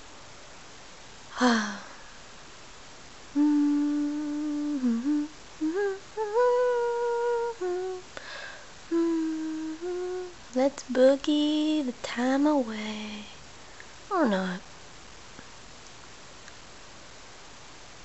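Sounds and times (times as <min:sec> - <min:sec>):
girl humming: 0:01.3 - 0:02.0, 0:03.4 - 0:10.4
short breath: 0:08.2 - 0:08.8.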